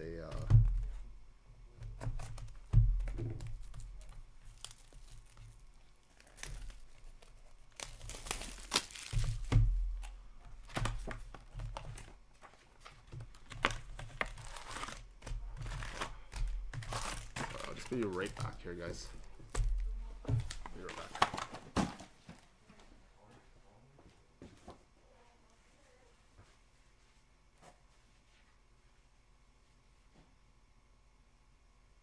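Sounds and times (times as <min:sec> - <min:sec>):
foil packs crinkling: 0:03.3 - 0:22.0
cardboard tearing: 0:04.0 - 0:09.5, 0:13.4 - 0:18.5.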